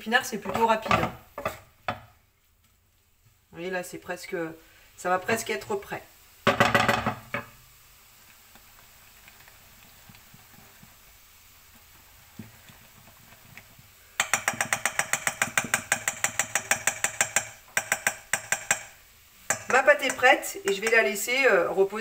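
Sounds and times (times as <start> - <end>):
whisk beating batter in bowl: 12.4 - 18.8.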